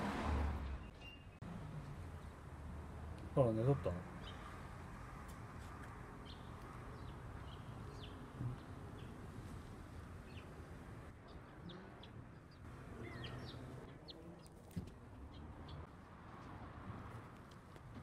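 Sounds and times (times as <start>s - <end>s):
bird chirps: 0.8s - 1.4s, 11.3s - 14.6s.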